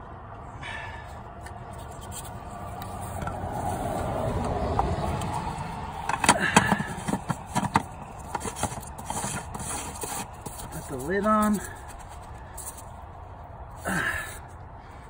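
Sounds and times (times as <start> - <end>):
plastic rubbing scrape: 5.3 - 12.9.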